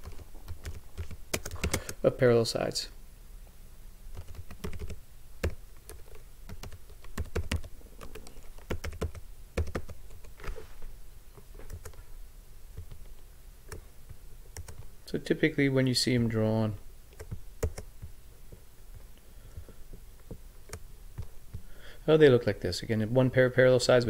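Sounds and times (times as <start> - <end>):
typing on computer keyboard: 0.0 - 2.0, 4.2 - 10.3, 11.6 - 12.0, 14.6 - 14.9, 17.2 - 17.9.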